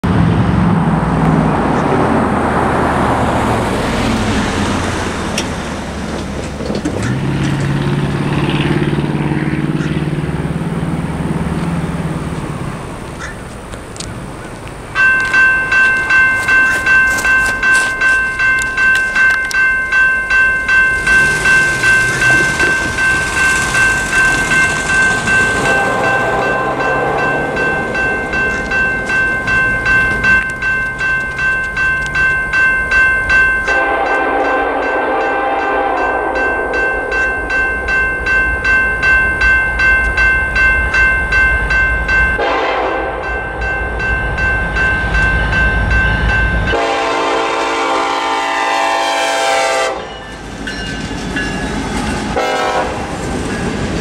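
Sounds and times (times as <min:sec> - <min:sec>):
road traffic passing: 0:00.0 - 0:54.0
electronic crossing bell ringing: 0:14.9 - 0:47.2, 0:49.9 - 0:52.7.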